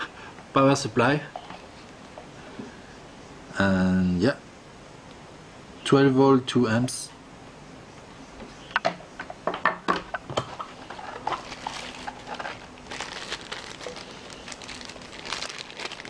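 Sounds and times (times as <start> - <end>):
plastic bag crinkling: 10.8 - 16.0.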